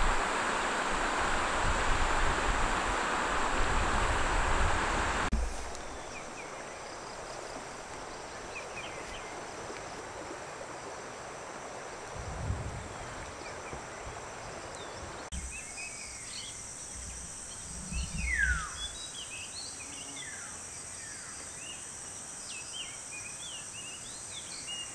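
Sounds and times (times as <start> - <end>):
steady rushing noise: 0.0 - 6.2
birds chirping: 12.8 - 21.9.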